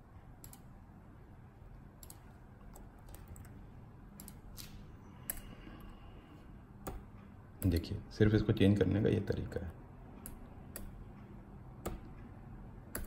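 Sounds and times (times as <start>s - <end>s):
low steady hum: 0.0s - 13.0s
computer keyboard and mouse clicks: 0.4s - 0.7s, 2.0s - 3.6s, 4.2s - 5.9s, 6.8s - 7.9s, 10.2s - 11.0s, 11.8s - 12.2s.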